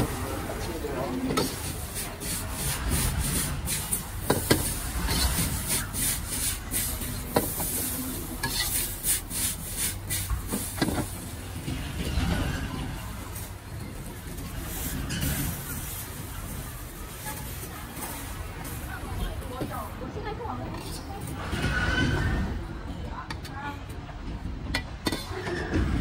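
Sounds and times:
ladle and spatula scraping wok: 1.3 - 11.2
sizzling: 1.3 - 11.4
metal clanking on wok: 8.4 - 8.9.

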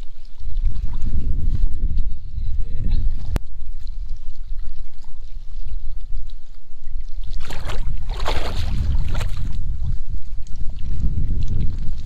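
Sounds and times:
steady low rumble: 0.5 - 12.0
water splashing: 3.0 - 12.0.

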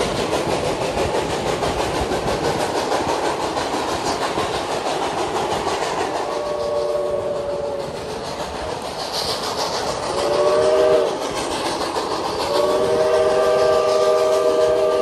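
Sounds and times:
train cars rolling on rails: 0.0 - 15.0
steam locomotive whistle blasts: 6.2 - 8.0, 10.1 - 11.3, 12.4 - 15.0.

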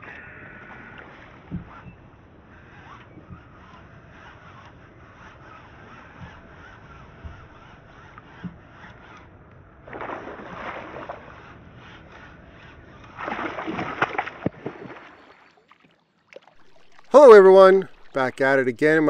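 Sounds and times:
water splashing against kayak: 9.8 - 19.0.

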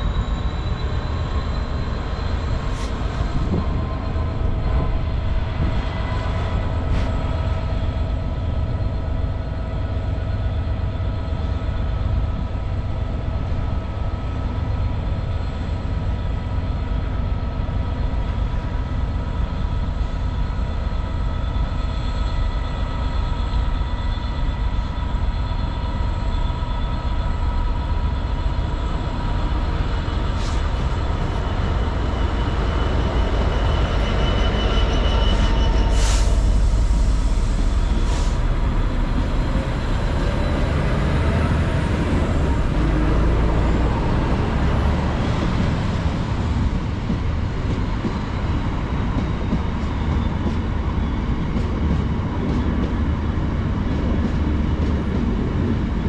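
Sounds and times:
steady whining tones: 0.0 - 51.9
locomotive engine rumbling: 0.0 - 56.0.

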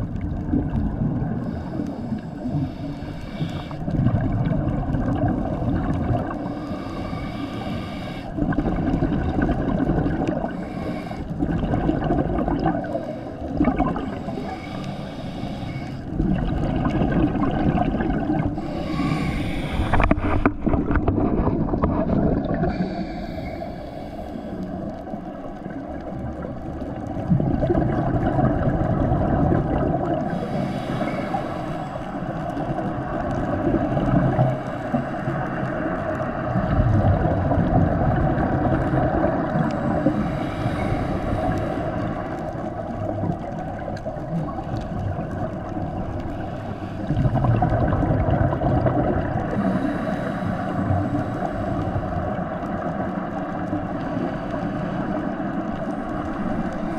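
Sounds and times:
exhaled bubbles underwater: 0.0 - 56.9
low steady underwater rumble: 0.0 - 56.9.

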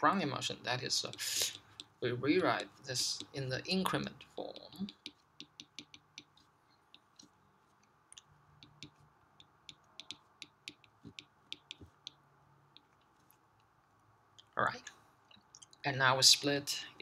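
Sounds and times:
stylus tapping on glass screen: 4.5 - 7.3, 8.6 - 12.9.

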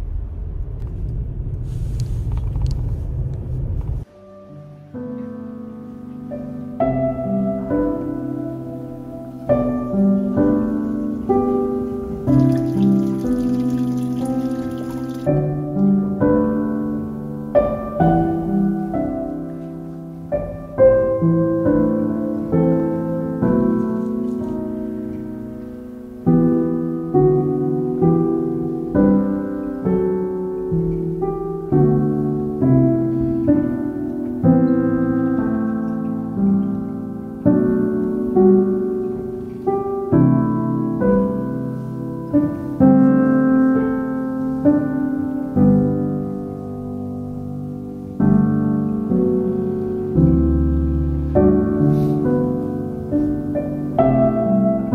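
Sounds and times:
slow piano chords: 2.6 - 54.9.

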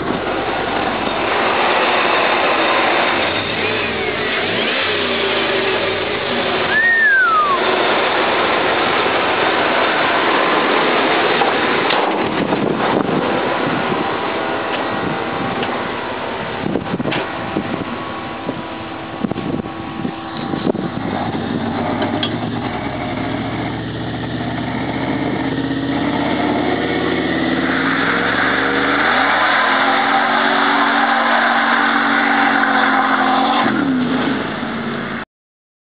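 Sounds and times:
spinning tyres hissing: 0.0 - 35.2
truck engine revving: 0.0 - 35.2.

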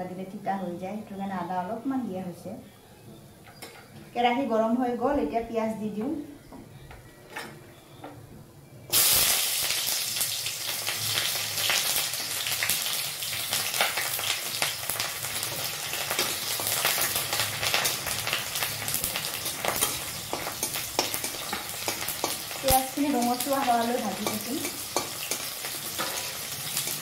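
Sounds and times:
onions sizzling in hot oil: 8.9 - 27.0.

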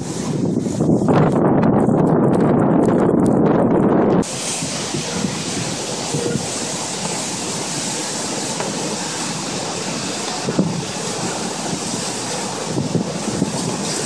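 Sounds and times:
rain and wind hiss: 0.0 - 1.4, 4.2 - 14.0
wind buffeting microphone: 0.0 - 14.0.

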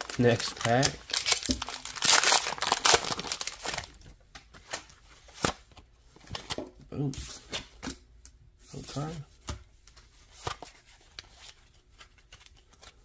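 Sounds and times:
foil pack ripping open: 0.0 - 3.9
wrapper and cards clicking and rustling: 0.0 - 3.9.

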